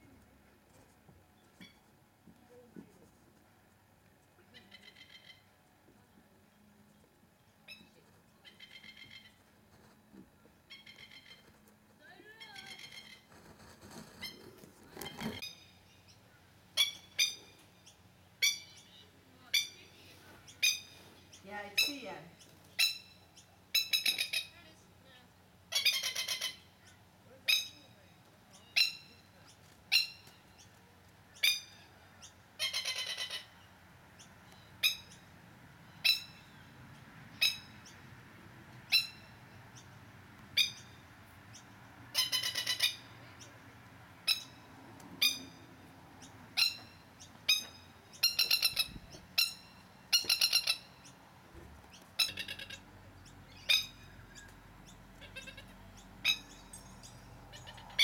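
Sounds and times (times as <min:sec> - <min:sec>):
lapwing alarm calls: 0:04.5 - 0:05.6, 0:07.7 - 0:09.4, 0:10.7 - 0:11.5, 0:14.1 - 0:24.6, 0:25.7 - 0:27.9, 0:31.3 - 0:36.7, 0:37.4 - 0:38.0, 0:38.9 - 0:40.0, 0:40.6 - 0:43.5, 0:44.2 - 0:51.3, 0:51.9 - 0:58.0.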